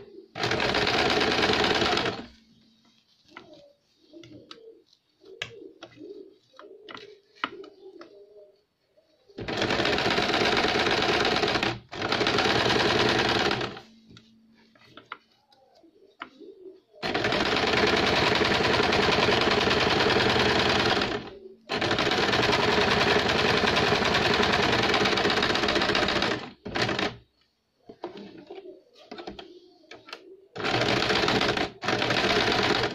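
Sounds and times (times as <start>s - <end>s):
sewing machine stitching: 0.3s - 2.4s, 9.4s - 13.9s, 17.0s - 27.2s, 30.6s - 32.9s.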